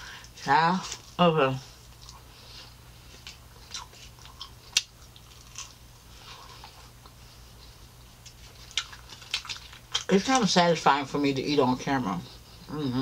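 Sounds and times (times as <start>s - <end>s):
person chewing: 1.8s - 10.4s.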